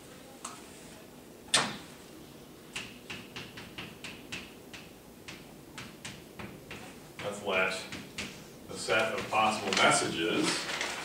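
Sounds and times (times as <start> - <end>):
chalk tapping and scratching: 2.8 - 9.8.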